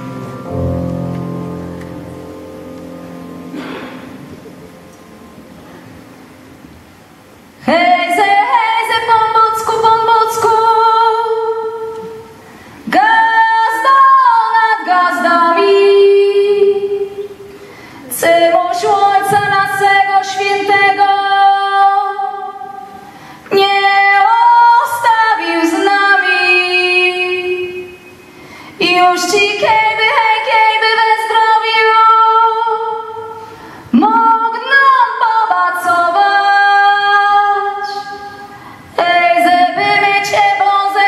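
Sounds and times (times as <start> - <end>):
woman singing unaccompanied carol: 7.6 - 17.4, 18.1 - 28.2, 28.8 - 38.4, 39.0 - 41.0.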